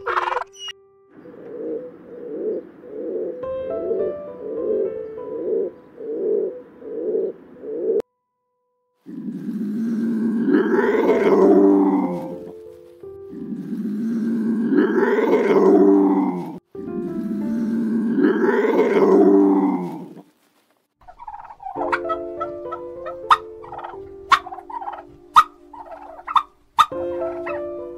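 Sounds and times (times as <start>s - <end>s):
soft background music: 0.0s - 7.9s, 9.4s - 19.7s, 21.2s - 27.9s
pigeon cooing: 0.0s - 8.0s, 9.1s - 12.7s, 13.3s - 20.3s, 21.0s - 27.9s
serval calling: 9.0s - 12.6s, 13.3s - 20.2s.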